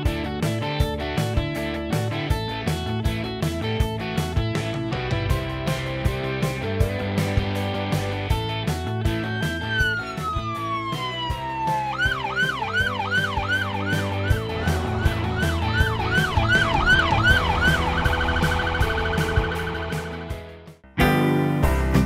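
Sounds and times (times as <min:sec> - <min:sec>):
background music with steady beat: 0:00.0 - 0:22.0
police car siren: 0:09.1 - 0:20.5.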